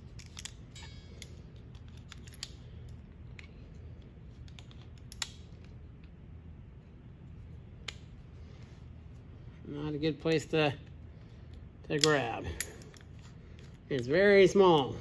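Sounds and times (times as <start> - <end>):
pliers clicking on steel: 4.4 - 5.5, 11.9 - 13.0.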